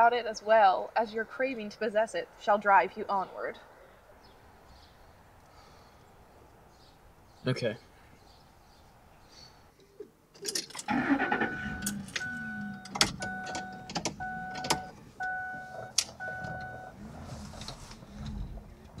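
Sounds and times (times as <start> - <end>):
car engine starting and idling: 10.4 - 19.0
dashboard warning chime: 11.0 - 17.0
sharp clicks in car cabin: 11.8 - 16.8.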